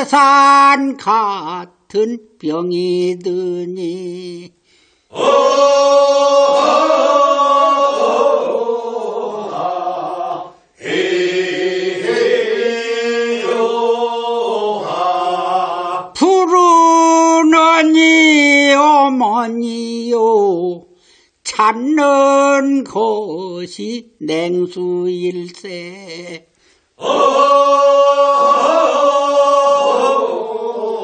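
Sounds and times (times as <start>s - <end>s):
group singing a work song: 5.1s - 16.3s, 25.6s - 31.0s.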